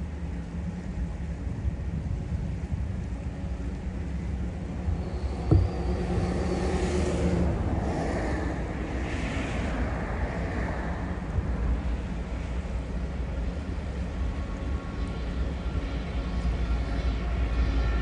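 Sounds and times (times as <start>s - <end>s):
locomotive engine rumble: 0.0s - 18.0s
wind buffeting microphone: 0.4s - 18.0s
sharp thump: 5.4s - 6.4s.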